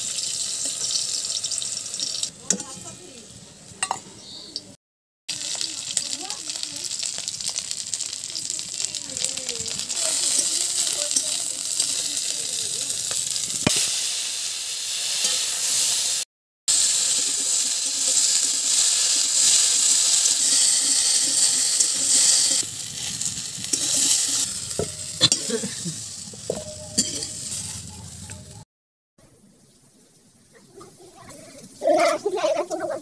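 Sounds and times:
vegetables sizzling in oil: 0.0 - 4.0, 5.3 - 28.6
ladle scraping wok: 16.9 - 28.6.

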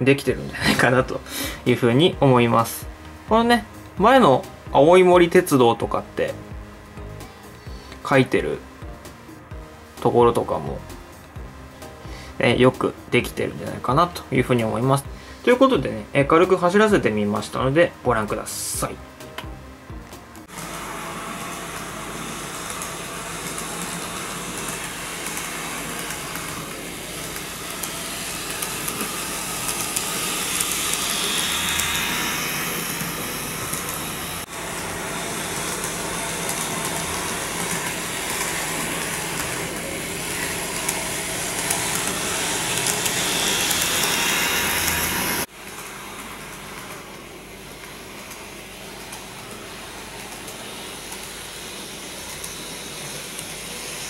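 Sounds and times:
model train motor whine: 20.5 - 54.0
wheels rolling on track: 21.4 - 47.2.

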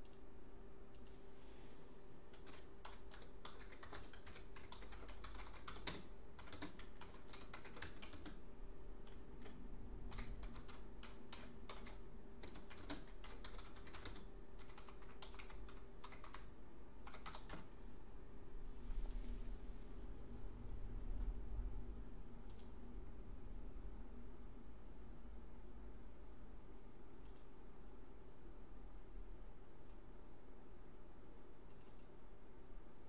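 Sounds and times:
typing on computer keyboard: 0.0 - 0.2, 2.3 - 8.4, 9.0 - 17.7, 31.6 - 32.1
faint steady hum: 0.0 - 33.0.

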